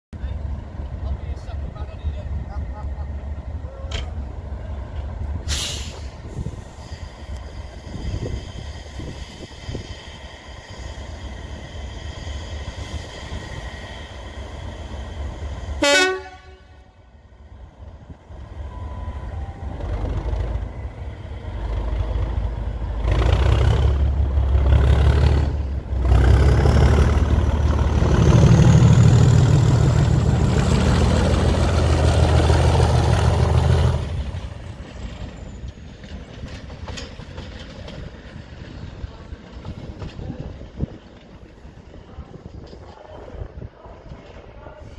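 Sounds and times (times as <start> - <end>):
diesel locomotive engine: 0.1 - 44.9
locomotive horn toot: 15.8 - 17.0.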